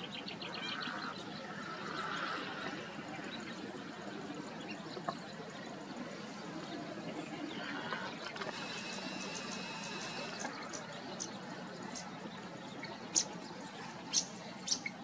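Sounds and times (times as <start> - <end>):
faint high whine: 0.6 - 14.5
steady hiss: 7.8 - 11.4.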